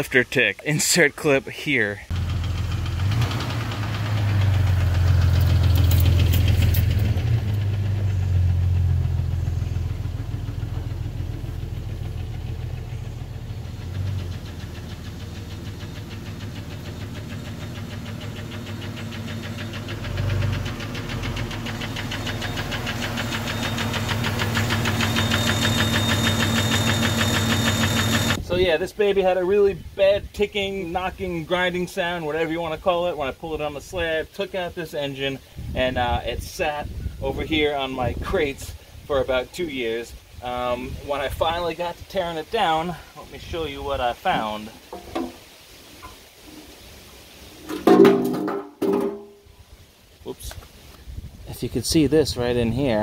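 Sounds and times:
engine ticking and knocking: 2.1s - 28.4s.

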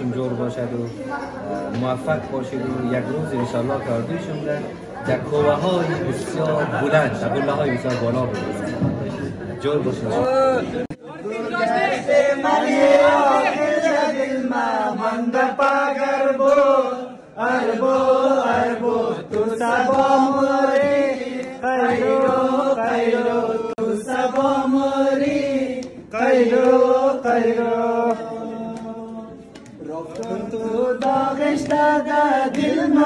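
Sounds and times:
group singing in unison: 11.4s - 33.0s.

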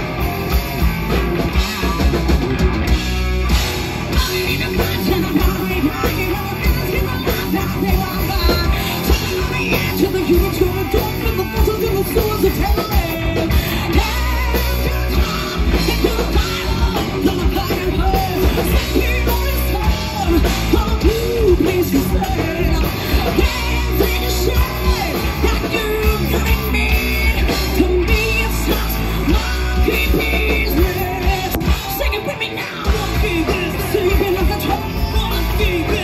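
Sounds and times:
bass guitar: 0.0s - 36.0s
drums: 0.0s - 36.0s
electric guitar: 0.0s - 36.0s
woman singing: 4.2s - 36.0s.

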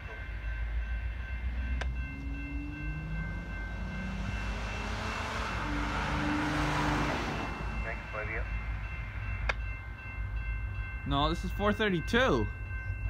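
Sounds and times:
train rumble: 0.0s - 13.0s
distant locomotive horn blasts: 1.6s - 8.7s.

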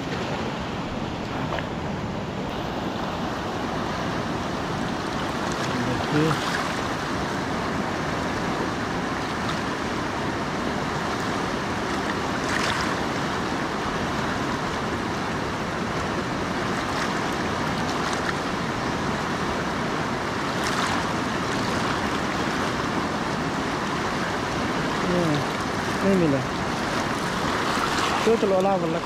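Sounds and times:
river rapids rushing: 0.0s - 29.0s
water splashes: 0.0s - 29.0s.

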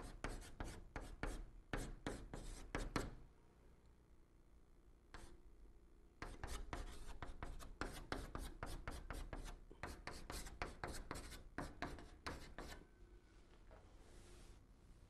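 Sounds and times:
chalk writing on a blackboard: 0.0s - 3.2s, 5.2s - 5.4s, 6.2s - 12.8s.

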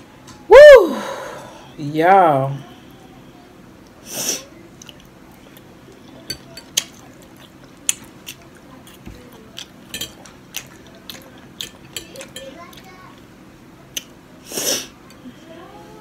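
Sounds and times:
chewing: 4.7s - 13.2s
cutlery clicking on plate: 9.6s - 12.5s.

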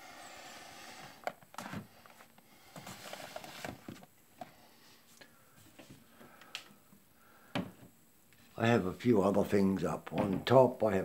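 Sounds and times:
boxes knocking and rustling: 1.0s - 4.6s.

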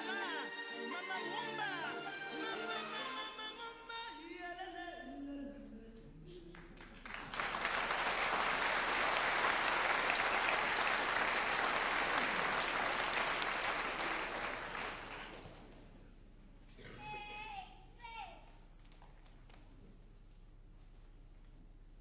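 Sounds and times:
audience applauding: 6.6s - 15.6s.

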